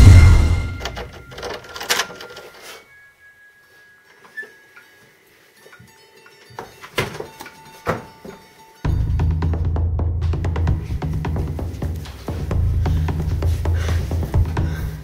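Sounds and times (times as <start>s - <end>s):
soundtrack music held tones: 0.0s - 1.3s, 8.7s - 15.0s.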